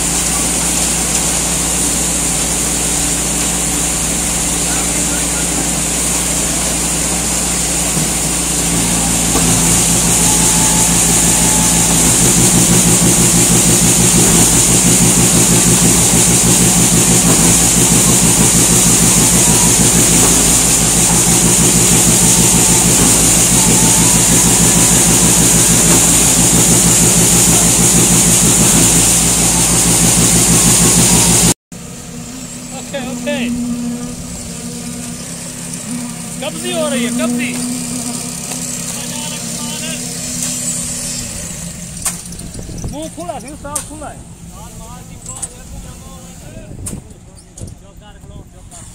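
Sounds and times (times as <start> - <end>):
concrete pump engine hum: 0.0 - 48.9.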